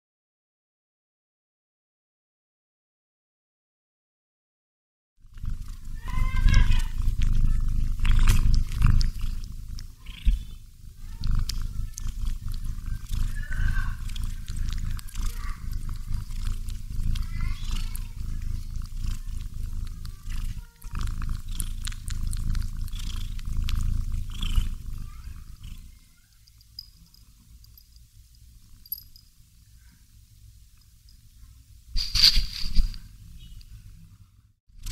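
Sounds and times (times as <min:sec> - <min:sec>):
cat snoring: 0:05.2 - 0:26.0.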